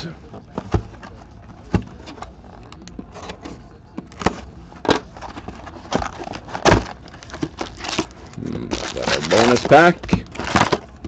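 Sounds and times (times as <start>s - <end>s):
cardboard flaps rustling: 3.0s - 11.0s.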